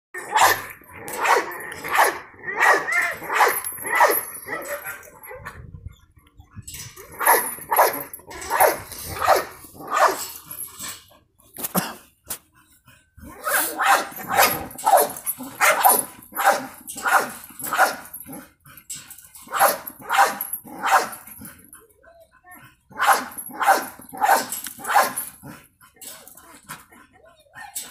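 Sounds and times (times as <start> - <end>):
dog barking: 1.2 - 5.0, 7.2 - 10.2, 13.4 - 18.0, 19.5 - 21.2, 23.0 - 25.2.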